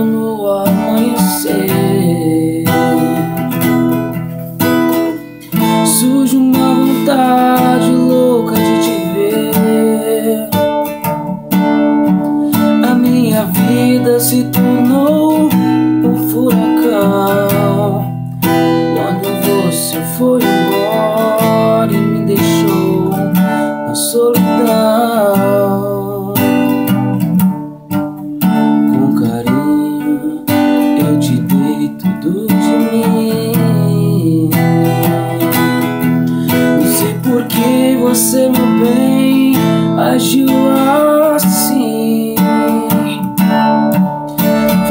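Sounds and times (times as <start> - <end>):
man singing: 0.0 - 11.2, 12.4 - 27.4, 28.5 - 44.9
acoustic guitar strumming: 0.0 - 44.9.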